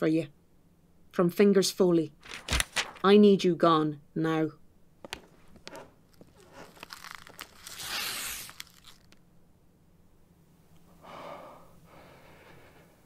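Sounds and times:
paper envelope tearing: 2.2s - 3.1s, 5.7s - 9.2s
paper rustling: 2.2s - 3.2s, 5.1s - 9.2s.

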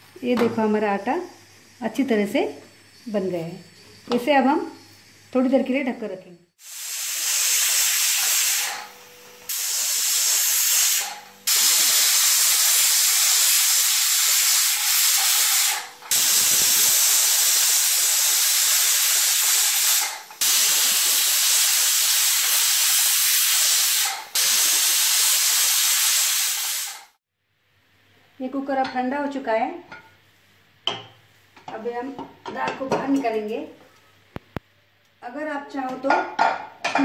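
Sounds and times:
pressure cooker steam hissing: 6.6s - 27.2s.

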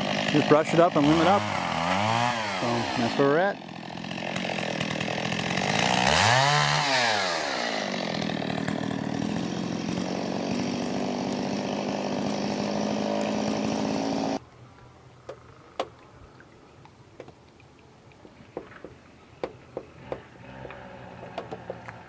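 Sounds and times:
chainsaw running: 0.0s - 14.4s, 19.8s - 22.0s.

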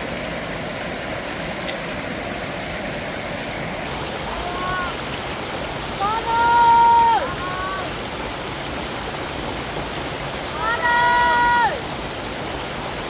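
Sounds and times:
running water rushing: 0.0s - 13.0s
faint held voice call: 4.2s - 5.0s, 6.0s - 8.0s.

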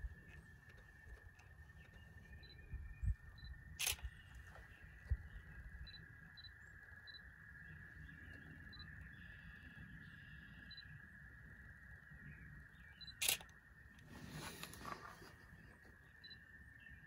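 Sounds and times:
faint high whine: 0.0s - 17.0s
camera autofocus beeps: 3.4s - 4.5s, 13.0s - 13.5s
camera shutter click: 3.8s - 4.2s, 13.2s - 13.5s.

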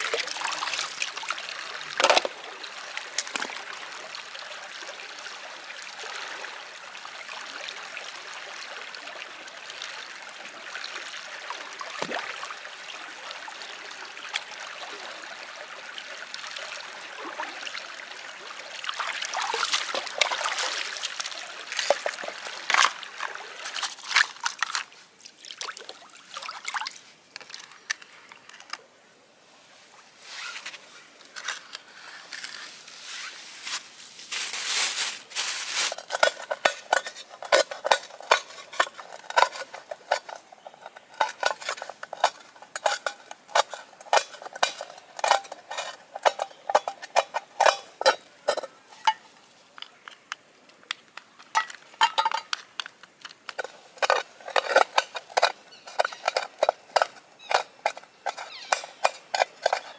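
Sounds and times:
water trickling: 0.0s - 28.7s, 35.0s - 50.6s
utensils clinking on pots: 35.7s - 49.2s, 51.5s - 52.6s, 53.5s - 59.9s.

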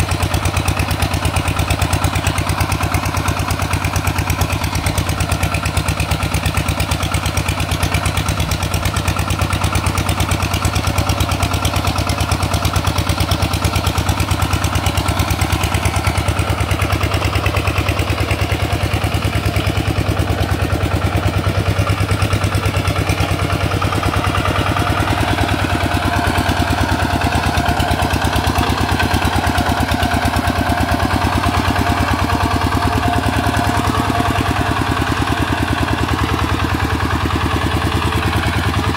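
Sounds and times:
tractor engine running: 0.0s - 38.9s.

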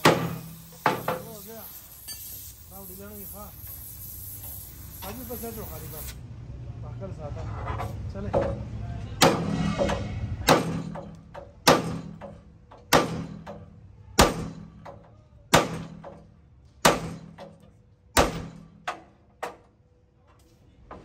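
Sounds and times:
hammer striking steel: 0.0s - 1.4s, 8.3s - 19.6s.

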